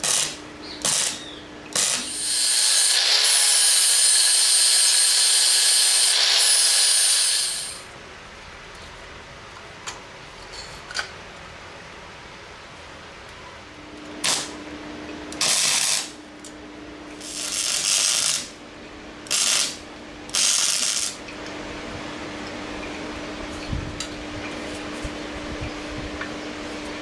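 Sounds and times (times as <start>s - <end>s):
welding arc crackling: 0.0s - 1.2s, 1.8s - 7.9s, 14.2s - 14.6s, 15.4s - 16.2s, 17.2s - 18.6s, 19.3s - 21.2s
welder hum: 0.0s - 8.0s, 14.0s - 14.6s, 15.3s - 16.2s, 17.2s - 18.6s, 19.3s - 21.2s.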